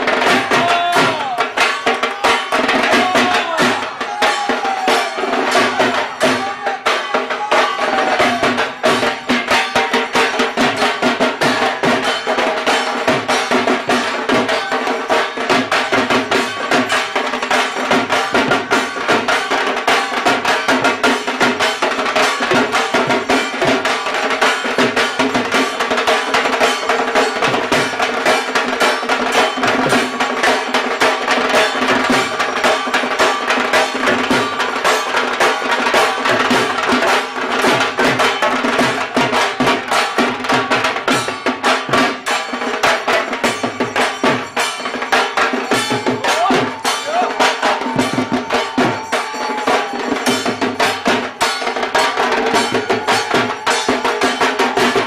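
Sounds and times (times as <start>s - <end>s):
drums beaten rapidly: 0.0s - 55.0s.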